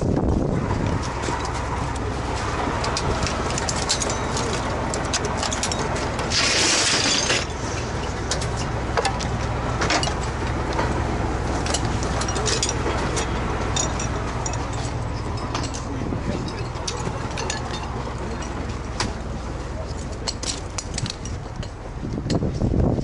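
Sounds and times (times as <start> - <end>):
low engine hum: 0.0 - 23.0
metal equipment clattering: 2.5 - 19.2.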